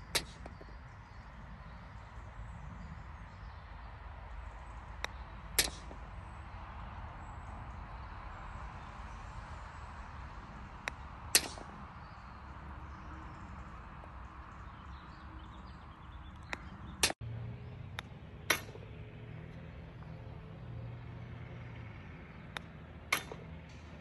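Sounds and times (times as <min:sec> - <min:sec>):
golf club clicking ball: 0:10.8 - 0:11.6, 0:16.3 - 0:17.2.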